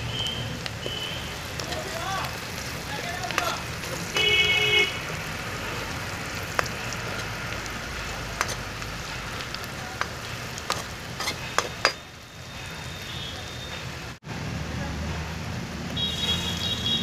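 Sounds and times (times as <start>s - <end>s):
onions sizzling in oil: 0.0s - 14.2s, 15.9s - 17.0s
spatula scraping metal pan: 6.6s - 12.0s.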